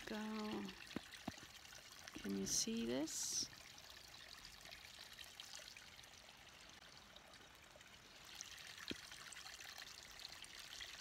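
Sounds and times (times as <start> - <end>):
stream trickling: 0.0 - 11.0.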